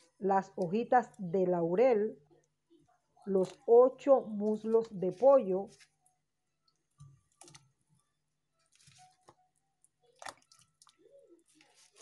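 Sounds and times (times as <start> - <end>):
splashes in pot of water: 10.2 - 11.0.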